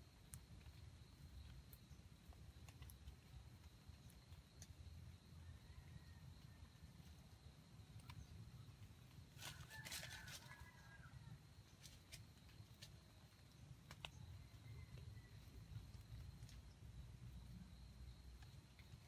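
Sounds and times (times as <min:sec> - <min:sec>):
faint ticks: 0:00.1 - 0:05.2.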